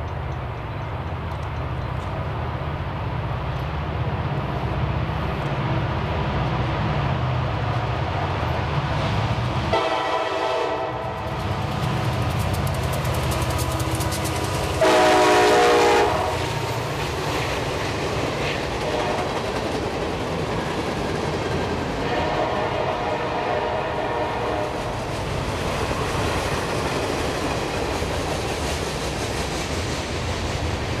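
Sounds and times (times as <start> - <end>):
train wheels rumbling and clacking: 0.0 - 31.0
locomotive air horn blast: 9.7 - 11.2, 14.8 - 16.6, 18.8 - 19.3, 22.0 - 24.8.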